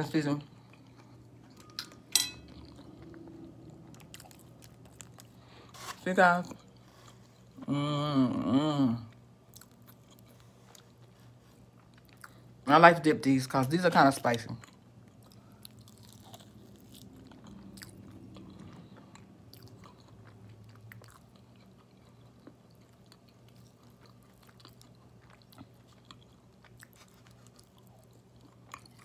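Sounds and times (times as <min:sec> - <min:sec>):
person chewing with mouth clicks: 0:14.6 - 0:29.0.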